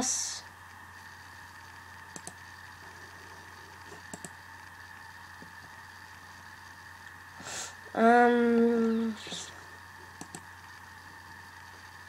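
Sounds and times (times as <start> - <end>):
steady low hum: 0.0 - 12.0
laptop clicks: 4.0 - 4.4, 10.2 - 10.5.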